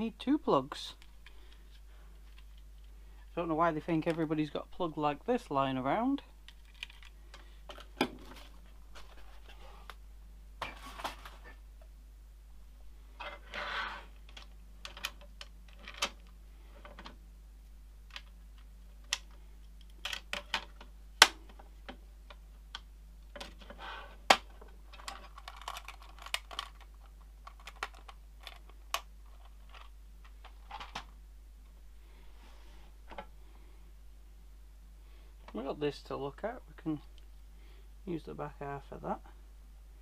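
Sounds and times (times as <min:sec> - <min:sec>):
small objects clicking and tapping: 0:14.2 - 0:17.2, 0:24.3 - 0:31.1.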